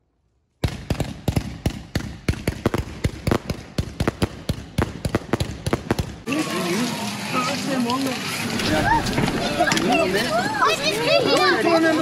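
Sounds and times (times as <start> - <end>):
fireworks banging: 0.6 - 6.3.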